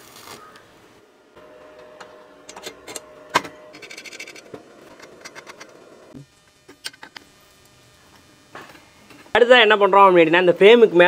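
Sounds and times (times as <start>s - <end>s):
metal scrape: 1.4s - 6.2s
metal parts clinking and knocking: 2.6s - 5.7s.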